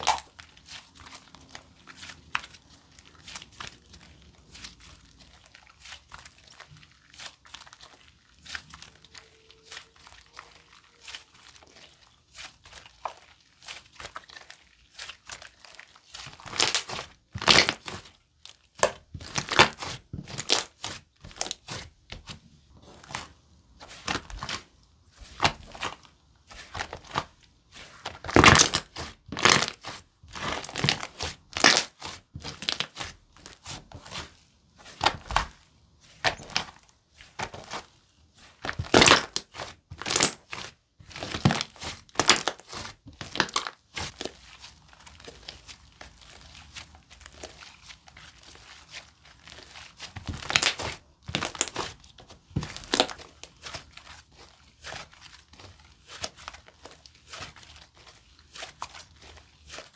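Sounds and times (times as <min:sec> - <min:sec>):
slime squishing and popping: 0:00.0 - 0:12.0, 0:12.7 - 0:22.3, 0:27.9 - 0:34.2, 0:38.5 - 0:54.2.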